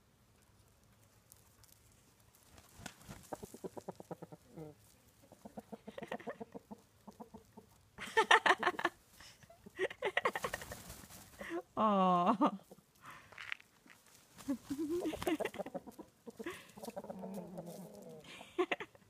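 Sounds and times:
chickens clucking: 2.8 - 11.5, 14.4 - 19.0.

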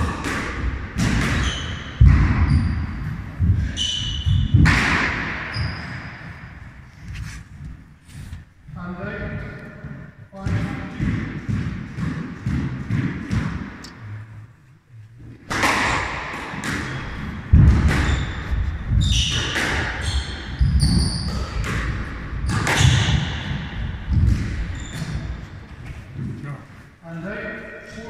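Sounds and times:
squash ball cracking off rackets: 0.0 - 5.6, 15.4 - 26.4
court shoes squeaking: 1.0 - 8.5, 15.6 - 26.5
heavy thudding footsteps: 2.0 - 13.9.

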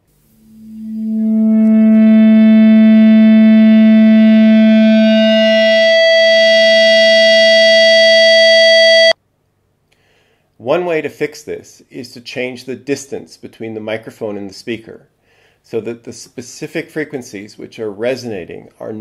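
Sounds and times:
microphone feedback howl: 0.0 - 9.2.

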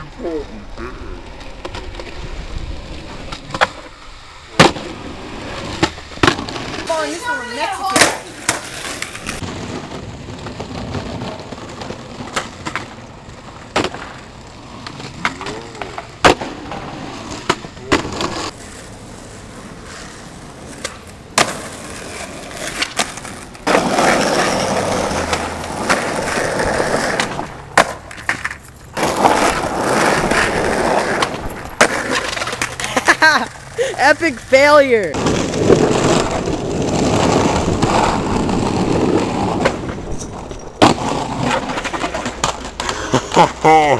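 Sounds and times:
skateboard wheels rolling on concrete: 0.0 - 43.9
skateboard popping and landing clacks: 2.8 - 43.5.

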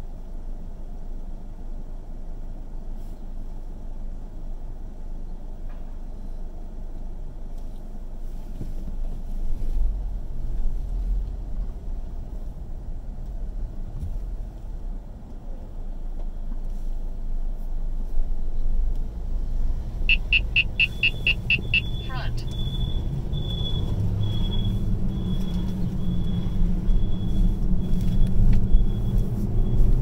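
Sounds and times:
car engine and tyres rumbling: 0.0 - 30.0.

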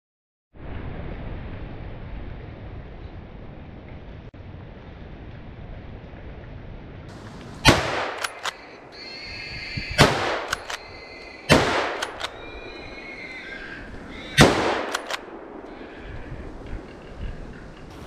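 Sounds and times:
rifle shots with echo: 7.6 - 8.7, 10.0 - 10.8, 11.5 - 12.4, 14.4 - 15.7
rifle bolt clicks: 8.1 - 8.7, 10.4 - 10.8, 11.9 - 12.4, 14.8 - 15.2.

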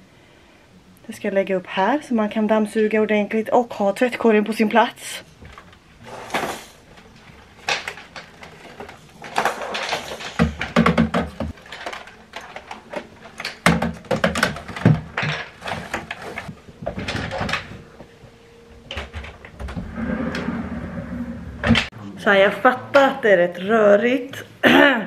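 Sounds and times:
plastic controller knocking on shelf: 10.4 - 11.6, 13.6 - 15.5.

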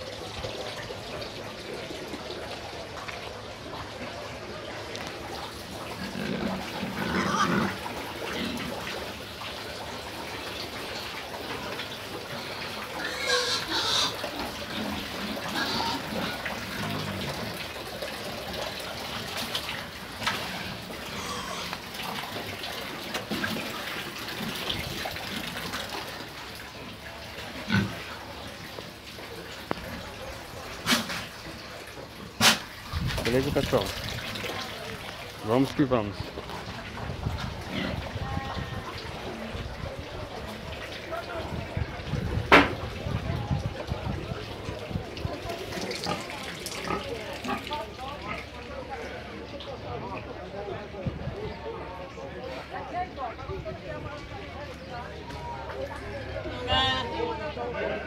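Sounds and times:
pigs grunting: 5.7 - 9.2, 12.3 - 17.7, 20.3 - 22.4, 27.4 - 28.4, 37.5 - 38.2, 45.7 - 49.2.

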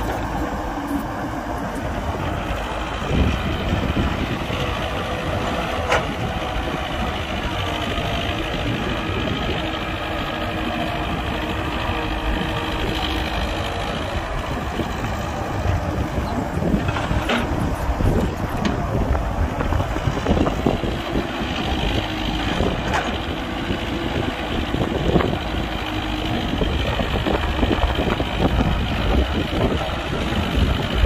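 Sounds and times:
heavy diesel machinery running: 0.0 - 31.0.

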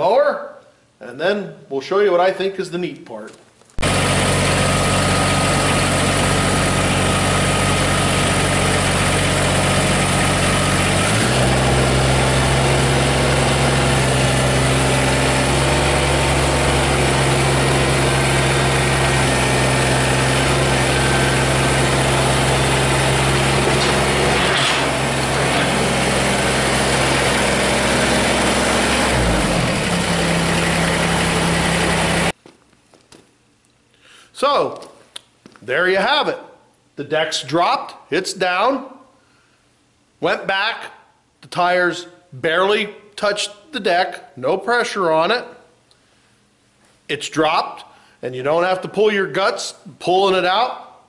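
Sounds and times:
tractor diesel engine running: 3.8 - 32.4.

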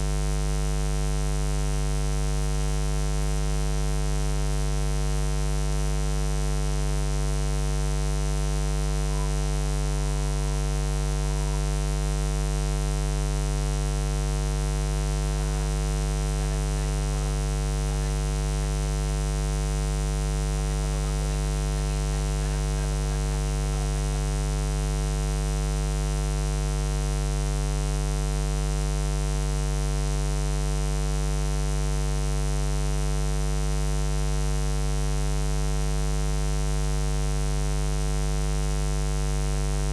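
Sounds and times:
electrical mains hum: 6.3 - 27.4.

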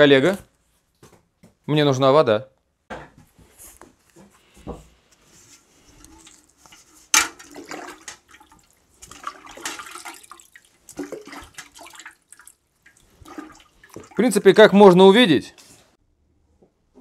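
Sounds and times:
water sloshing in a metal bucket: 5.6 - 14.6.

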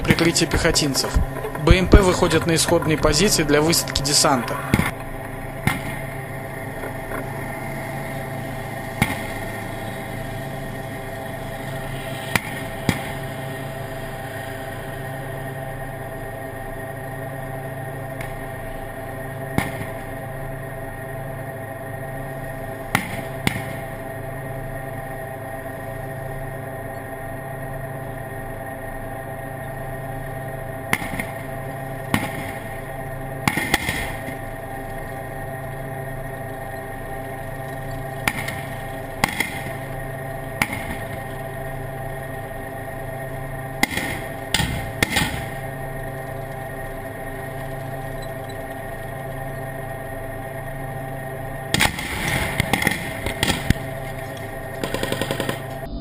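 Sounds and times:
tank engine drone: 0.0 - 56.0
gunfire cracks: 33.5 - 34.3, 38.3 - 39.7, 43.8 - 45.5, 51.8 - 53.9.

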